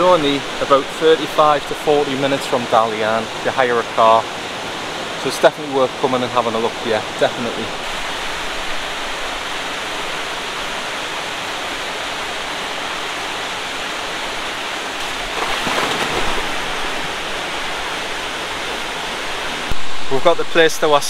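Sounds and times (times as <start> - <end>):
person splashing into water: 15.0 - 17.0.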